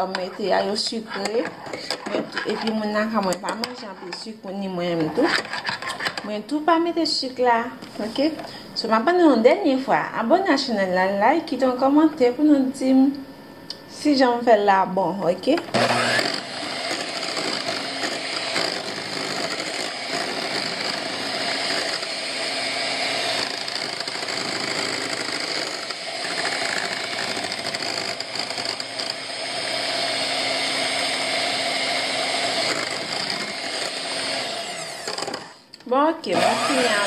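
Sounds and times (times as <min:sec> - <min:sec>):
electric hand mixer whisking: 0:00.0 - 0:04.3, 0:05.0 - 0:06.3, 0:15.6 - 0:35.6, 0:36.3 - 0:37.0.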